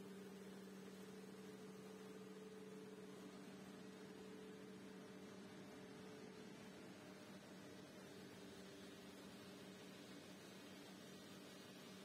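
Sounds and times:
light hiss: 0:06.6 - 0:12.0.

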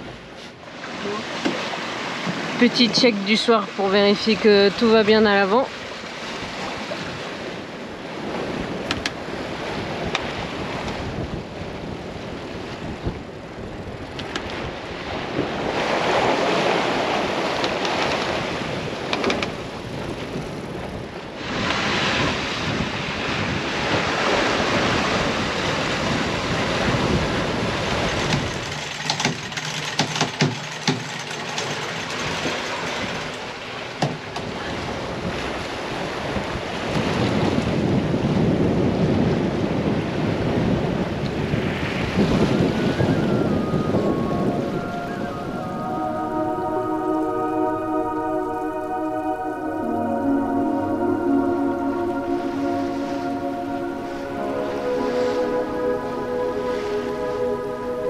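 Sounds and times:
sea rushing along a hull: 0:00.0 - 0:58.0
wind buffeting microphone: 0:01.8 - 0:29.6, 0:31.4 - 0:48.2
sharp clicks and knocks: 0:28.3 - 0:32.8.

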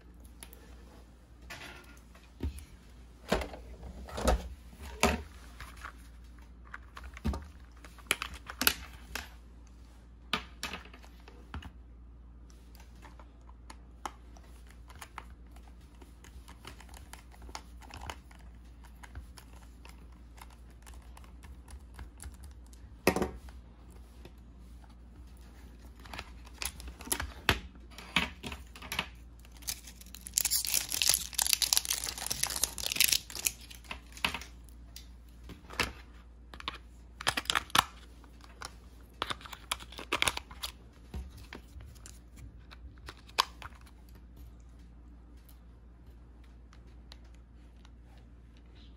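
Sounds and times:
batteries crinkling and rustling: 0:05.4 - 0:09.3, 0:12.8 - 0:22.8, 0:25.3 - 0:35.0, 0:35.8 - 0:44.4.

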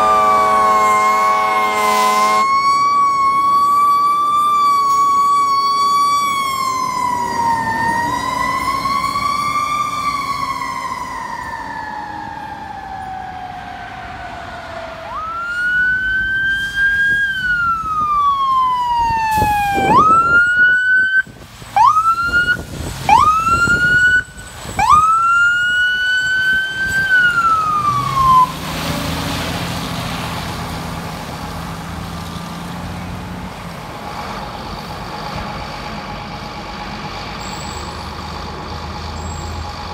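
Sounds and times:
siren wailing: 0:00.0 - 0:29.7
siren sweeping sharply: 0:00.0 - 0:31.7, 0:33.7 - 0:39.9
fire truck engine running: 0:00.0 - 0:39.9.

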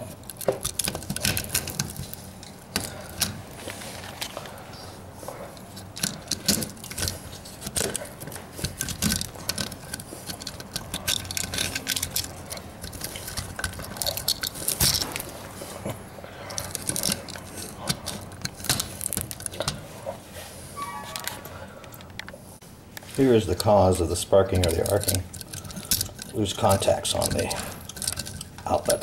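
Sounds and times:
loose parts clattering: 0:00.0 - 0:04.6, 0:05.4 - 0:20.1, 0:23.3 - 0:29.0
clicks and rattles of handled outlet: 0:05.8 - 0:15.3, 0:24.6 - 0:29.0.

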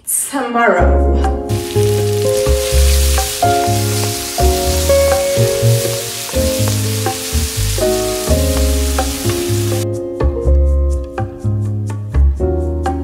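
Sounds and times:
background music with bass and keyboard: 0:00.8 - 0:13.0
food sizzling in a pan: 0:01.5 - 0:09.8.

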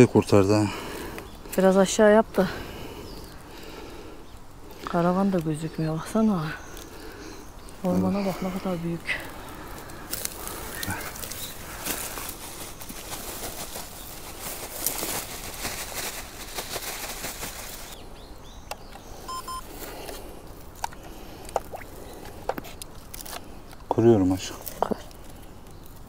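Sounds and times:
dry leaves and twigs crackling: 0:00.0 - 0:26.0
short high beeps: 0:19.3 - 0:19.6.

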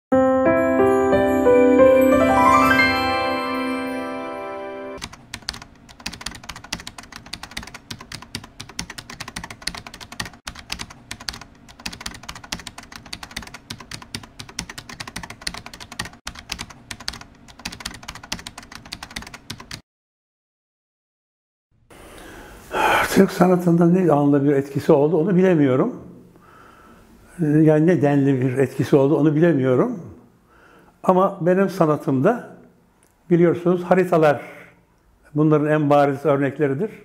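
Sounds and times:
chiming music jingle: 0:00.1 - 0:05.0
keyboard typing clicks: 0:05.0 - 0:19.8.

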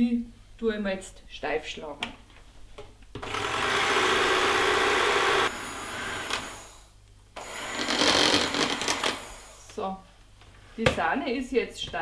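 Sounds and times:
electric hand mixer whipping cream: 0:03.2 - 0:06.8, 0:07.4 - 0:09.7.

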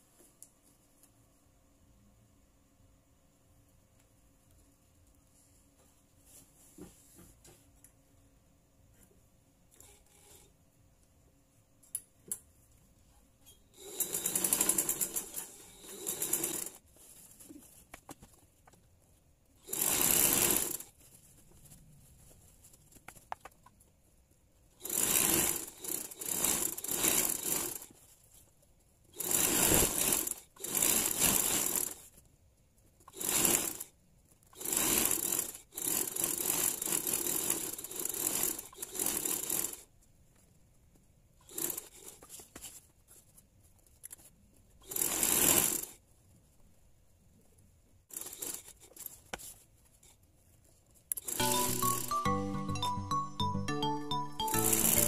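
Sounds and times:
sewing machine stitching: 0:13.5 - 0:16.8, 0:19.6 - 0:21.0, 0:24.8 - 0:28.0, 0:29.1 - 0:32.1, 0:33.0 - 0:33.9, 0:34.6 - 0:39.9, 0:41.4 - 0:42.4, 0:44.8 - 0:46.0, 0:48.1 - 0:49.2, 0:51.1 - 0:52.1, 0:54.5 - 0:55.0.

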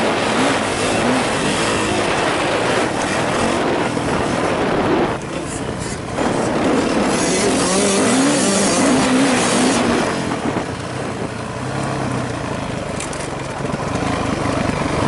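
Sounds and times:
wind noise on microphone: 0:00.0 - 0:11.5
motocross engine revving: 0:00.0 - 0:12.2.

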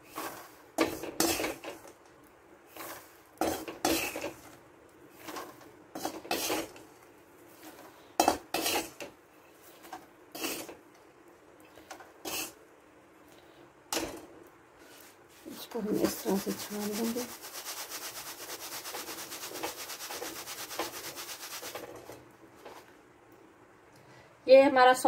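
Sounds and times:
peanuts rattling in metal strainer: 0:15.8 - 0:22.0.

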